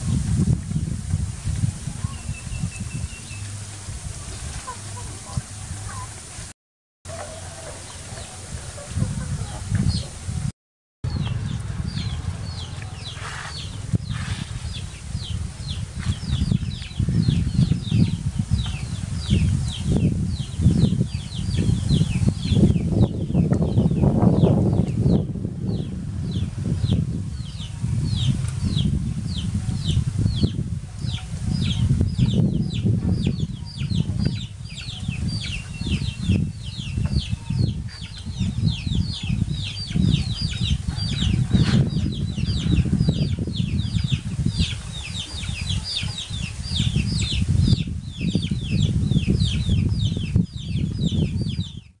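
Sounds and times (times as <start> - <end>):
chicks peeping: 1.5 - 6.2, 7.1 - 10.5, 11.1 - 51.9
loud low rumble: 8.0 - 18.9.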